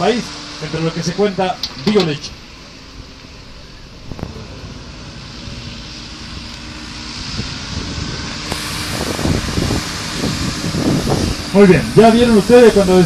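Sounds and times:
diesel engine running: 0.0s - 13.0s
wind buffeting microphone: 3.8s - 13.0s.

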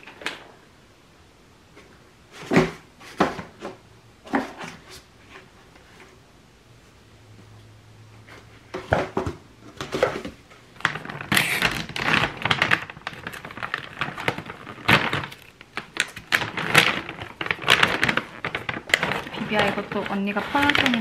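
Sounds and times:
plastic bag crinkling: 9.8s - 21.0s.

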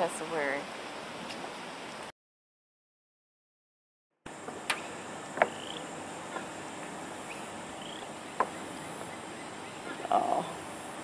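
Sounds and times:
high insect hum: 4.3s - 11.0s
faint rising bird chirps: 4.6s - 10.6s.

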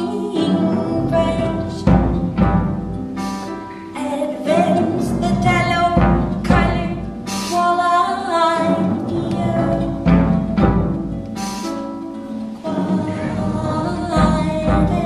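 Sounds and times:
woman singing: 0.0s - 2.2s, 3.8s - 10.4s, 12.6s - 15.0s
violin: 0.0s - 15.0s
loud drum strikes: 1.7s - 3.1s, 5.0s - 7.4s, 9.5s - 11.2s.

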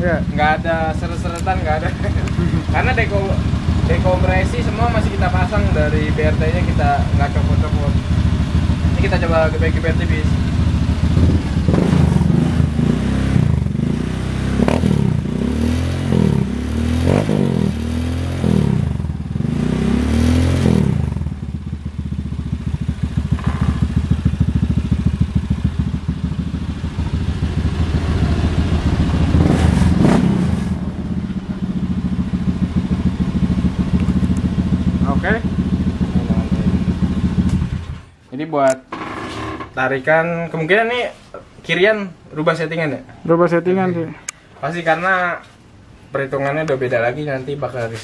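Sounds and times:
scooter engine idling: 0.0s - 12.9s, 21.0s - 29.5s, 30.8s - 38.2s
scooter engine revving: 1.6s - 38.1s.

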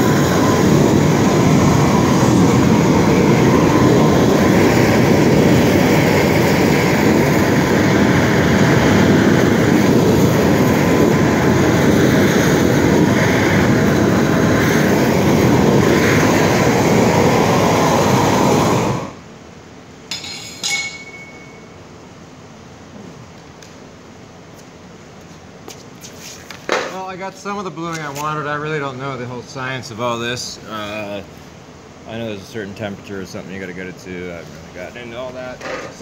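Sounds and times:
propane torch rushing: 0.0s - 19.3s.

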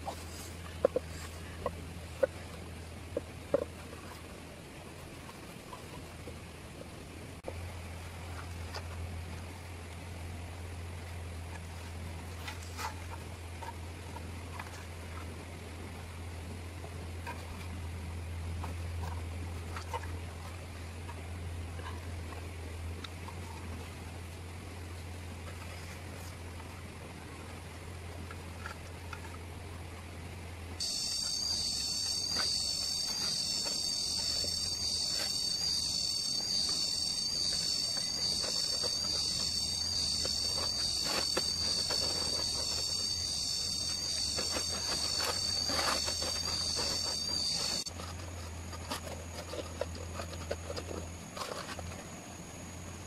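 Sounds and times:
high-pitched insect drone: 30.8s - 47.9s.

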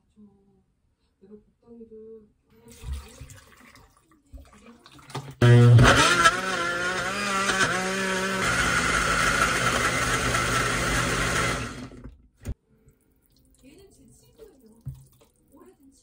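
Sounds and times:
blender running: 5.4s - 12.1s.

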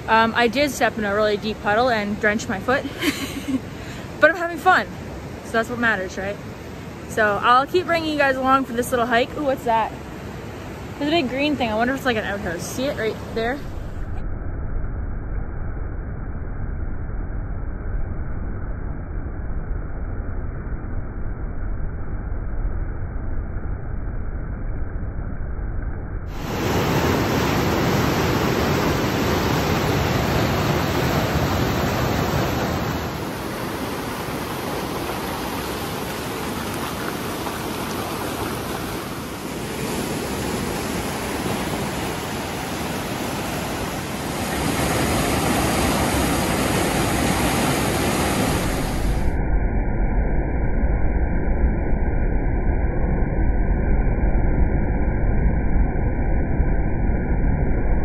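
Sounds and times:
river water rushing over rocks: 26.4s - 48.9s
waterfall cascade: 26.4s - 48.9s.

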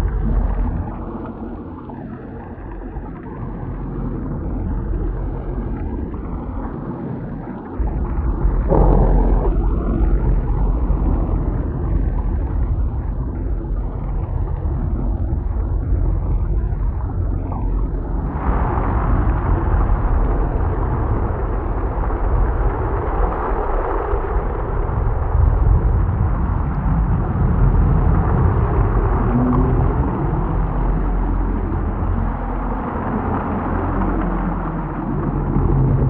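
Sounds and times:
deep thunder rumble: 7.7s - 36.0s.

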